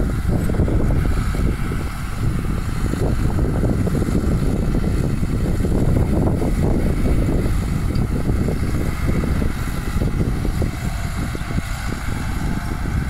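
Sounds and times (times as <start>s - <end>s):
tractor engine under load: 0.0s - 13.0s
wind buffeting microphone: 0.0s - 13.0s.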